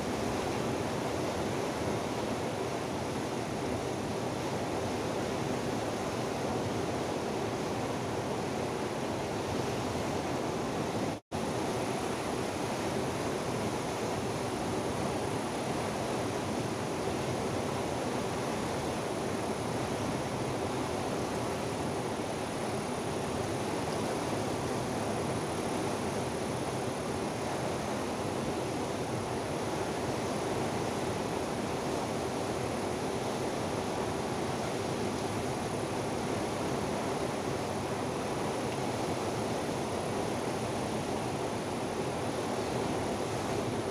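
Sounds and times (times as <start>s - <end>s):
river rushing over rocks: 0.0s - 43.9s.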